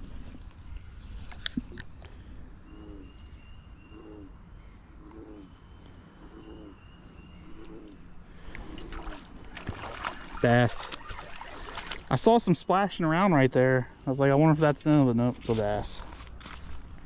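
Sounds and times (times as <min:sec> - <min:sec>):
faint outdoor background noise: 0:00.0 - 0:17.0
low cooing animal call: 0:03.8 - 0:04.4, 0:05.0 - 0:05.6, 0:06.2 - 0:09.4.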